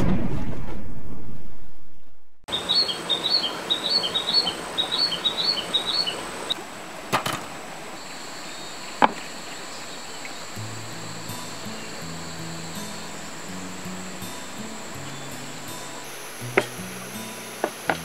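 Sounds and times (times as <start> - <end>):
whoosh: 0.0 - 2.4
small bird chirping: 2.5 - 6.6
steady outdoor hiss: 2.5 - 18.0.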